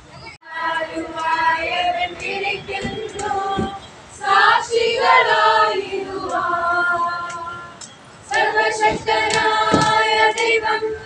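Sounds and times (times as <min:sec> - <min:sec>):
children singing: 0:00.4 - 0:11.0.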